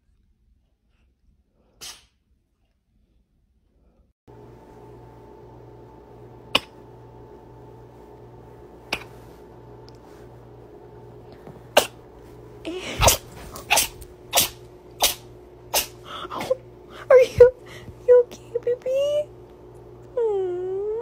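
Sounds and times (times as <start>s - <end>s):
cat sneezing: 1.8s - 2.2s, 6.5s - 6.8s, 8.8s - 9.4s, 11.7s - 12.0s, 12.8s - 16.6s.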